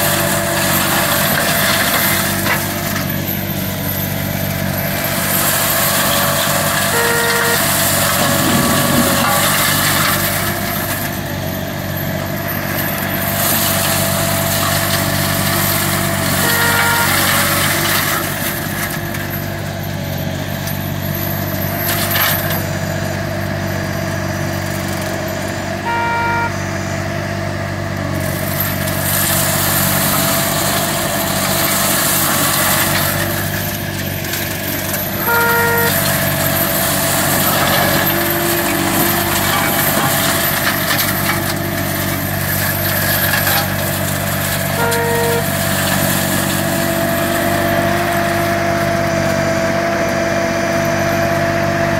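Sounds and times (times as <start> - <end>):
mower engine droning: 0.0 - 51.9
mulcher shredding brush: 0.0 - 51.9
short beeps: 6.9 - 9.4, 16.4 - 17.6, 25.8 - 26.8, 35.2 - 36.3, 44.8 - 45.6.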